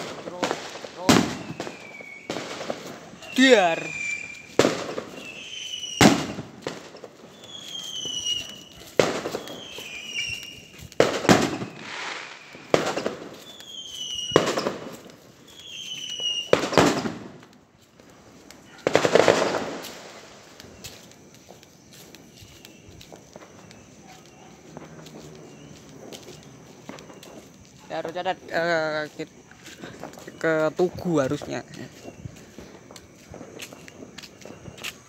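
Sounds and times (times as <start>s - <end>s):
distant firework bangs: 0.0s - 17.5s, 18.7s - 20.6s
short falling whistles: 3.2s - 4.6s, 5.2s - 6.3s, 7.3s - 8.7s, 9.4s - 10.8s, 13.4s - 14.4s, 15.5s - 16.5s.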